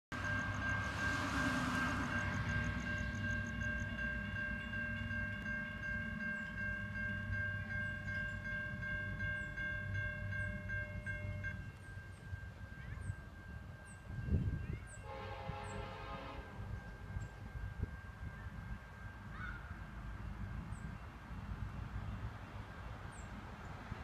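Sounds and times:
low rumble of freight train: 0.1 - 24.0
distant locomotive horn chord: 0.2 - 12.2, 14.8 - 17.0.

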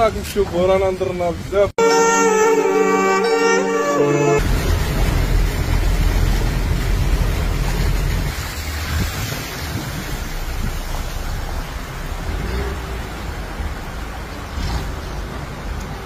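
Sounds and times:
wind buffeting microphone: 4.4 - 11.0.

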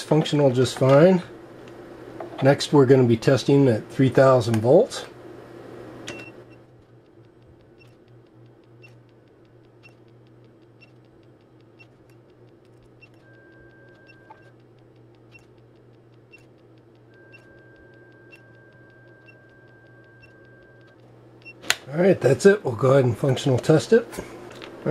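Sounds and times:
faint steady hum: 0.0 - 24.9
faint sharp clicks: 7.0 - 21.1.

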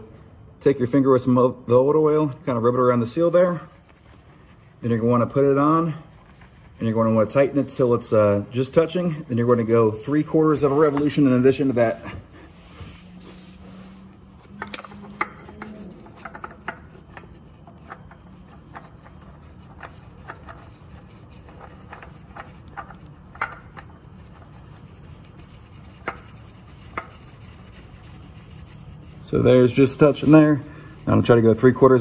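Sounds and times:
faint low hum: 0.0 - 32.0
oil filter clicks and rubbing: 14.0 - 30.6.

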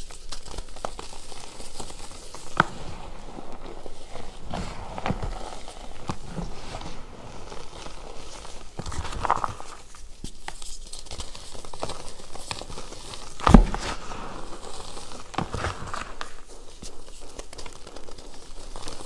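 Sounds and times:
chalk crunching and crackling: 0.0 - 19.0
dull thump into powder: 13.4 - 14.2.

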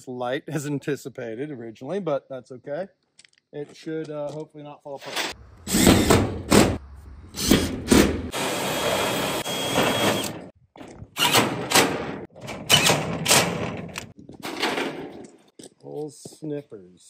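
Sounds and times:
impact driver motor whine: 8.3 - 10.5.

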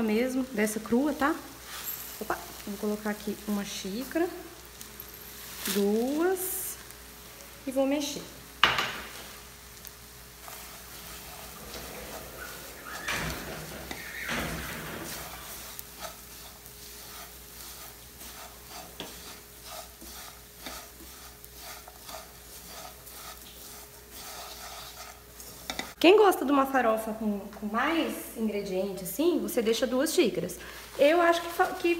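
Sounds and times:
faint sizzle: 0.0 - 31.9
spatula scraping frying pan: 1.5 - 3.0, 8.7 - 26.0.

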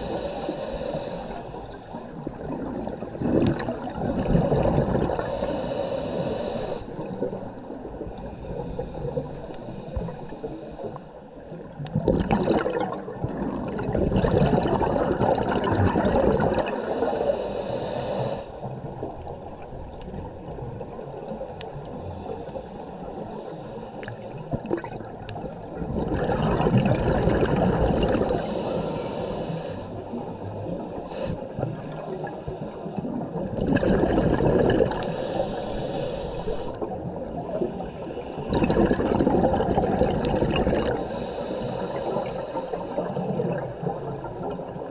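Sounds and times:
regulator inhale hissing: 0.0 - 2.3, 5.0 - 11.4, 16.6 - 18.9, 21.8 - 24.4, 28.1 - 33.0, 34.7 - 38.5, 40.8 - 43.2
exhaled bubbles burbling: 2.2 - 5.4, 11.6 - 16.8, 24.1 - 28.4, 33.0 - 35.2, 38.4 - 41.1, 43.0 - 44.9.

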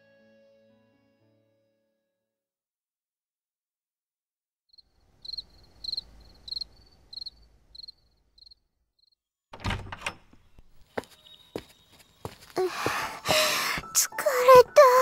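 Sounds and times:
insect chirping: 4.7 - 9.2
door thunk: 9.5 - 10.5
knocks and rattles: 9.5 - 10.9
door latch click: 9.6 - 10.7.

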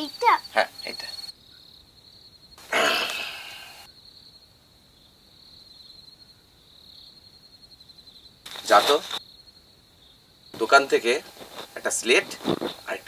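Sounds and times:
crickets chirring: 0.0 - 13.0
loud short rustling: 8.5 - 9.2, 10.6 - 13.0.

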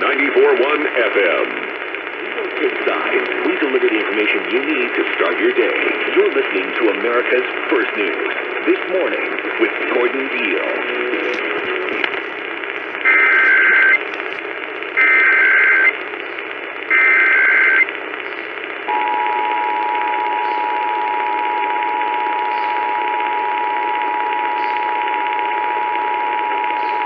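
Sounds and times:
radio static hiss: 0.0 - 27.0
buzzing data bursts: 7.1 - 27.0.

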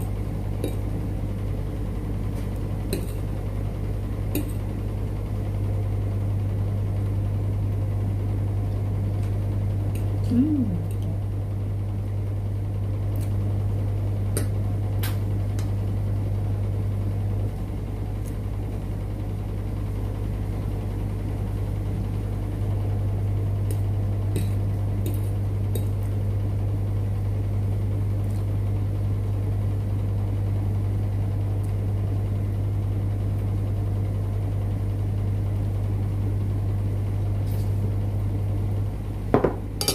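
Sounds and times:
steady low hum: 0.0 - 39.9.

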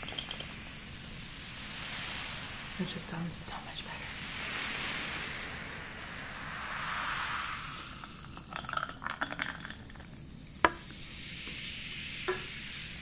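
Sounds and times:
ice crackling and clinking: 0.0 - 0.6, 8.0 - 11.1
sharp glass clink: 0.0 - 0.6
ginger ale fizzing: 0.0 - 13.0
drink pouring from can: 6.9 - 12.6.

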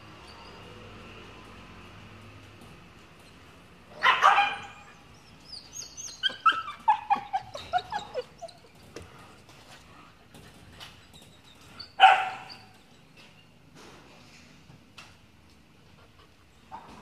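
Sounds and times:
dog barking: 4.0 - 4.9, 12.0 - 12.5
dog yelping: 4.0 - 8.8, 11.5 - 12.8.

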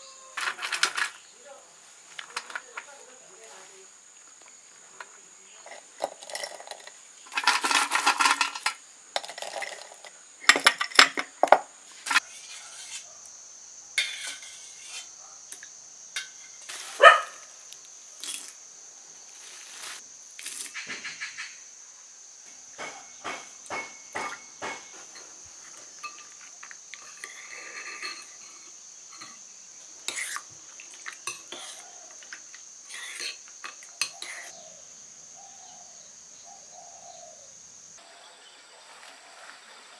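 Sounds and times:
high insect drone: 0.0 - 39.9
food rustling in bowls: 0.4 - 12.8, 16.4 - 17.4, 19.3 - 20.8
dishes and spoons clinking: 22.8 - 29.4, 31.0 - 32.4.

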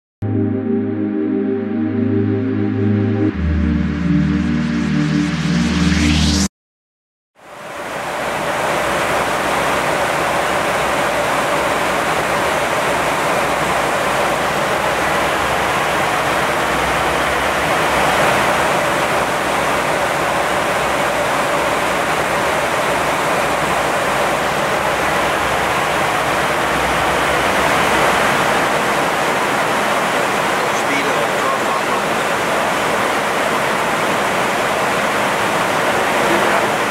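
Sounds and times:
air rushing past cockpit: 8.0 - 36.9.

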